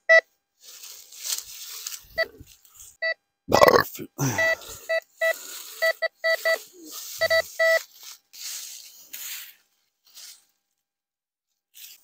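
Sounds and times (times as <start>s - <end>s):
metal detector beeps: 4.4s - 7.9s.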